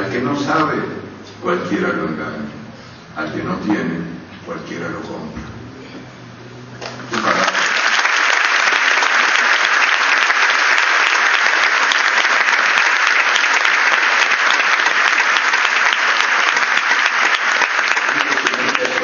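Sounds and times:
audience applauding: 7.0s - 19.0s.

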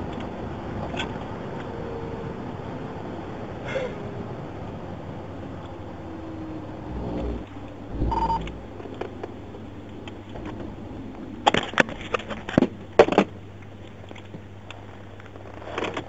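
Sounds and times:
radio hum: 7.3s - 8.6s.

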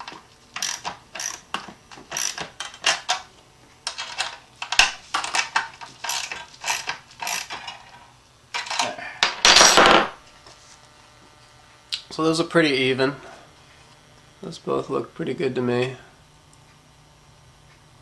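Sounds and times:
ratchet rattle: 0.6s - 1.4s, 2.1s - 3.1s, 4.0s - 7.8s
socket ratchet clicking: 0.6s - 1.4s.

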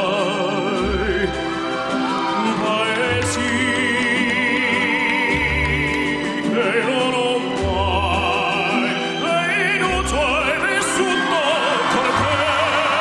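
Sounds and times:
operatic voice singing: 0.0s - 13.0s
orchestral accompaniment: 0.0s - 13.0s.

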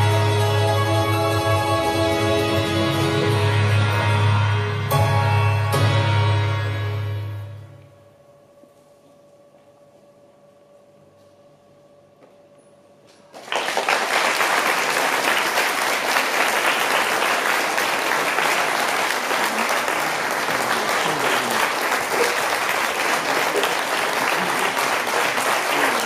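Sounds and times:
audience applause: 13.3s - 26.0s.

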